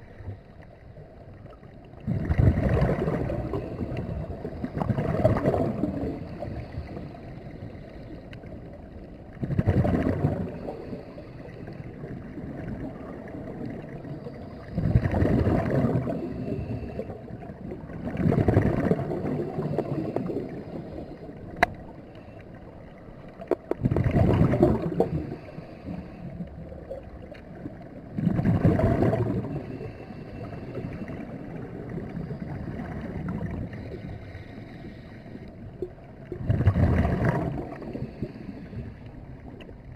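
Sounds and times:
diver exhaling bubbles underwater: 0:02.0 - 0:06.9, 0:09.4 - 0:11.0, 0:12.2 - 0:21.0, 0:23.4 - 0:26.1, 0:28.1 - 0:34.1, 0:36.3 - 0:38.8
regulator breathing rush: 0:25.0 - 0:26.5, 0:29.5 - 0:32.8, 0:33.7 - 0:35.6, 0:37.8 - 0:39.3.

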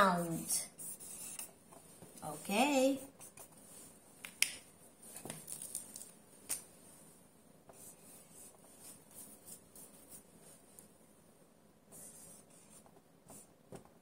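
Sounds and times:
marker scratching on whiteboard: 0:00.0 - 0:03.7, 0:07.7 - 0:10.6, 0:11.9 - 0:13.6.

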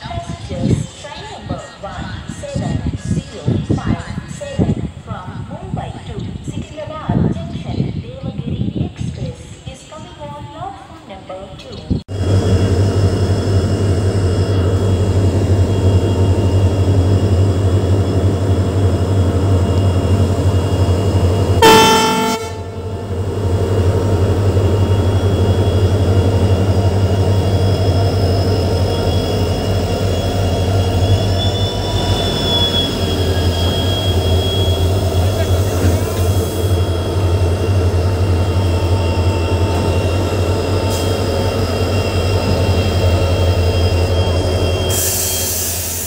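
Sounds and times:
diesel locomotive engine drone: 0:11.7 - 0:46.0
locomotive horn blast: 0:21.6 - 0:23.2.

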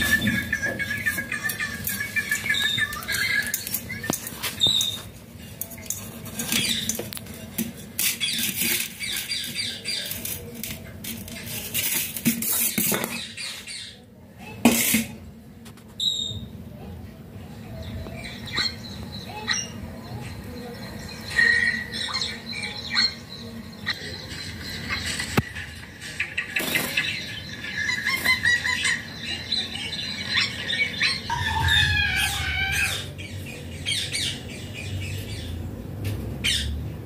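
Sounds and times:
clicks taps and scratches: 0:00.3 - 0:13.3.

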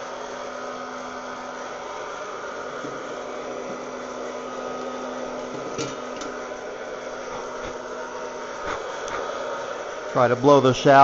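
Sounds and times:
hot-air popper fan blowing: 0:00.0 - 0:11.0
steady hum: 0:00.0 - 0:11.0.

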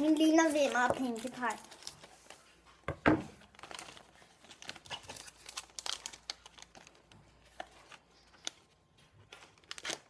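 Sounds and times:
foil and paper crinkling: 0:03.4 - 0:10.0.

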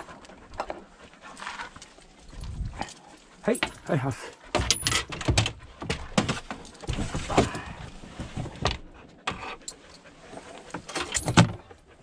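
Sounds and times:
metal clinking and rattling: 0:01.3 - 0:07.6, 0:10.8 - 0:11.6.

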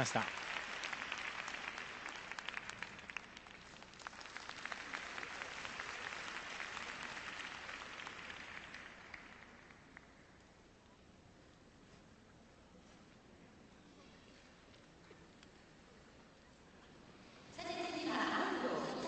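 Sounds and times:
crowd applauding: 0:00.0 - 0:10.2.

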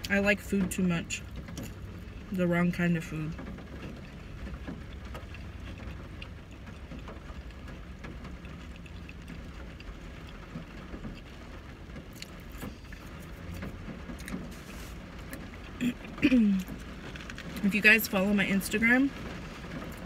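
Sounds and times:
person chewing food: 0:03.9 - 0:11.3, 0:12.1 - 0:16.8.

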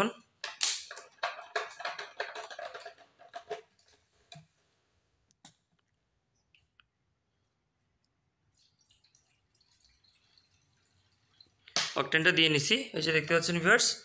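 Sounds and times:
plastic clicking and rattling: 0:00.4 - 0:04.4.

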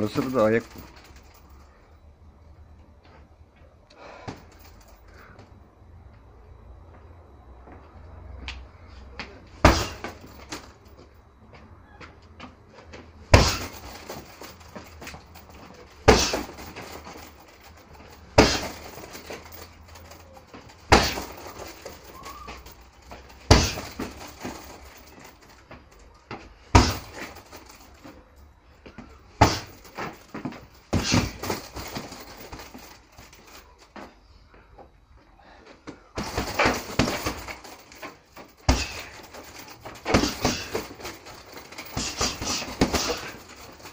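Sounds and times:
punching bag being struck: 0:09.6 - 0:10.7, 0:13.3 - 0:20.2, 0:20.8 - 0:25.1, 0:26.7 - 0:27.8, 0:29.4 - 0:32.9, 0:36.2 - 0:43.9.

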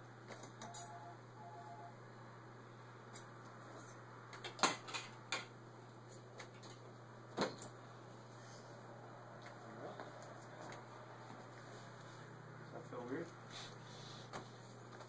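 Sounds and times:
faint hum: 0:00.0 - 0:04.5.

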